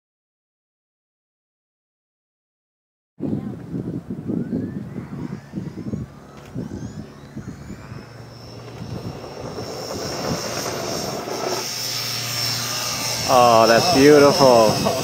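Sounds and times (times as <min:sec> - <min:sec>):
electric motor and propeller whine: 0:03.2 - 0:15.0.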